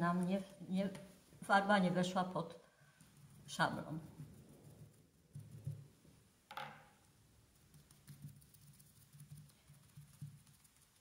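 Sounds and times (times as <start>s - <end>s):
sponge tapping on paper: 7.8s - 10.7s.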